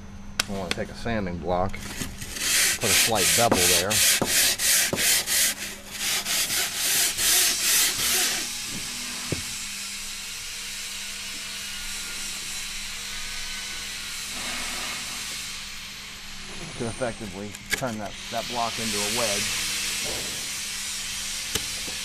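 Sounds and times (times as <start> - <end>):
faint hiss and hum: 0.0 - 10.3
sanding block rasping on wood: 2.2 - 8.5, 18.4 - 20.2.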